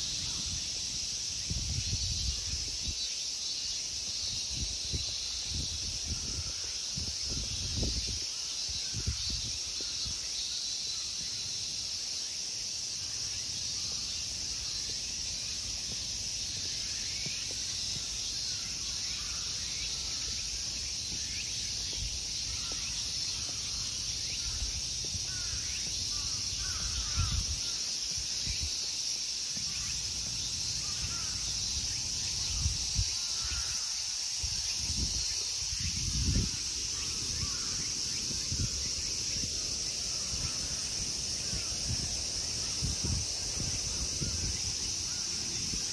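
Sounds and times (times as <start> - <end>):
insects chorus: 0.0 - 45.9.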